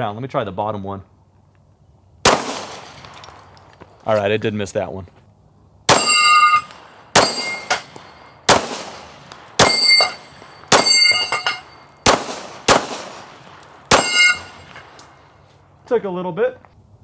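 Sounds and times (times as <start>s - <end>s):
pistol shots: 2.2s - 3.6s, 5.9s - 15.2s
steel target clanging: 5.9s - 12.2s, 13.0s - 14.9s.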